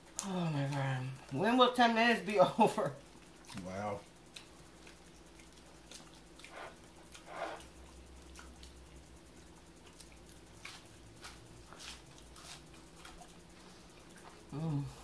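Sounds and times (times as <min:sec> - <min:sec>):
chewing mouth smacks: 0:04.3 - 0:14.5.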